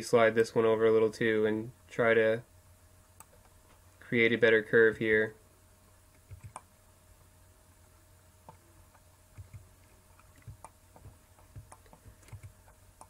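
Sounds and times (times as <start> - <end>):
low steady hum: 0.0 - 13.0
computer keyboard and mouse clicks: 6.2 - 6.7, 8.5 - 13.0.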